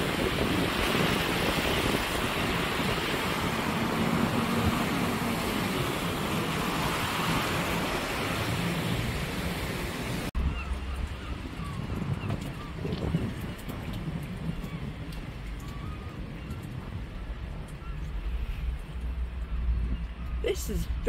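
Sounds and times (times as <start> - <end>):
road traffic passing: 0.0 - 12.4
waves breaking against seawall: 0.0 - 17.6
wind on microphone: 0.0 - 21.0.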